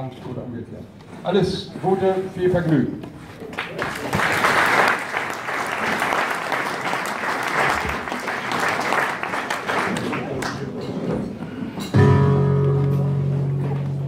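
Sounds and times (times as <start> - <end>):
audience applauding: 3.5 - 10.9.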